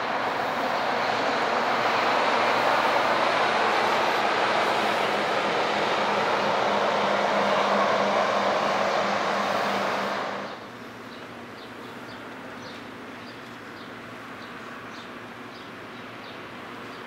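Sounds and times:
vehicle passing with rushing noise: 0.0s - 10.7s.

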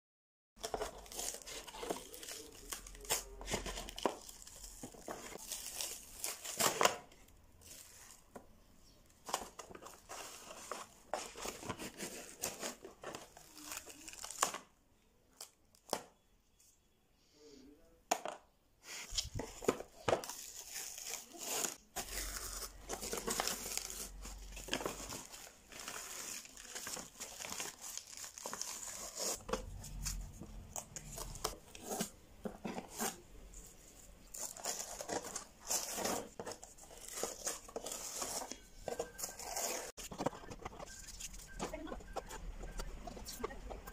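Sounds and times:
paper crinkling and tearing: 0.6s - 7.0s, 9.3s - 14.7s, 19.1s - 33.3s.

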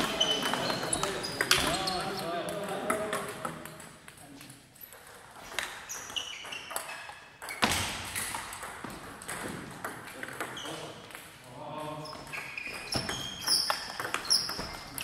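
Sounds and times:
table tennis balls clicking: 0.0s - 11.4s, 12.3s - 15.0s.

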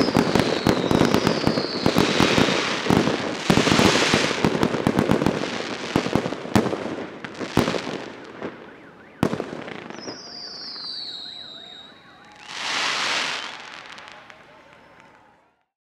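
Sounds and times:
fireworks crackling and banging: 0.0s - 15.6s
broad noise: 7.8s - 15.7s
thin falling whistle: 9.9s - 14.1s.

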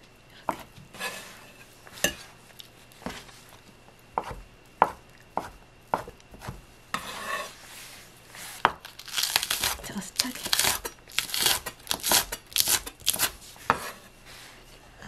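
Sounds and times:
knife blade scraping board: 0.9s - 2.2s, 6.9s - 7.6s, 10.6s - 14.1s
knife cutting on wooden board: 4.2s - 7.5s.

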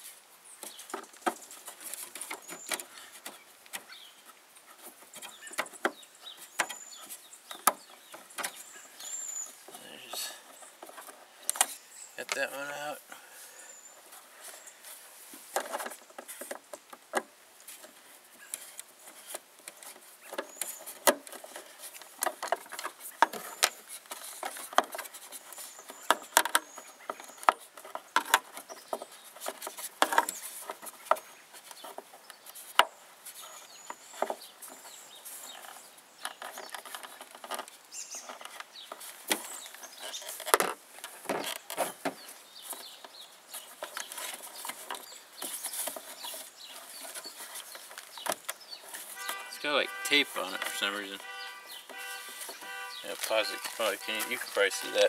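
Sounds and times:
fingers scraping plastic cover: 17.7s - 55.0s.

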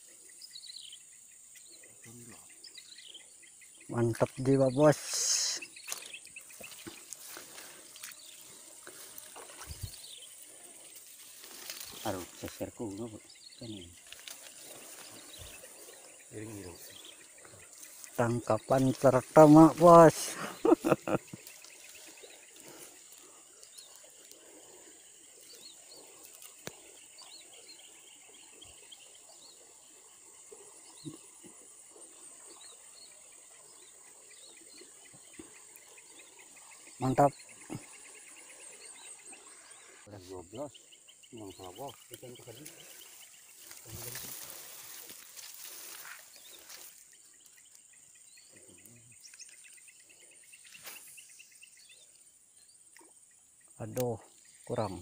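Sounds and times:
high insect drone: 0.0s - 55.0s.

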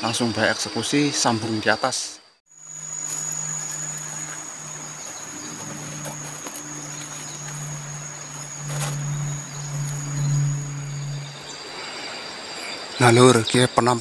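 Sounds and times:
insect high-pitched trill: 0.1s - 14.0s
low buzzing hum: 2.6s - 12.5s.

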